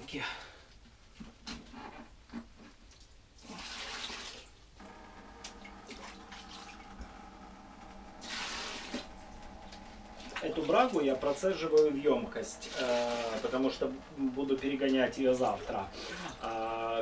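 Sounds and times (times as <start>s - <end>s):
faint steady hum: 4.6s - 17.0s
liquid splashing through strainer: 9.8s - 16.7s.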